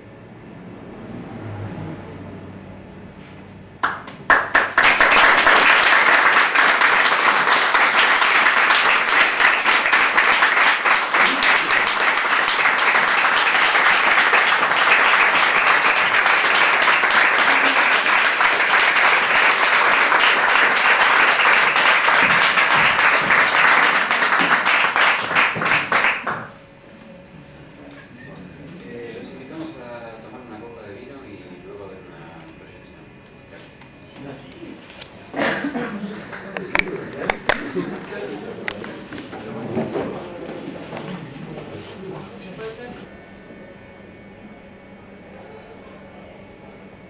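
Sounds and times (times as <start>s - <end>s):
audience applauding: 3.8s - 26.6s, 35.4s - 39.3s.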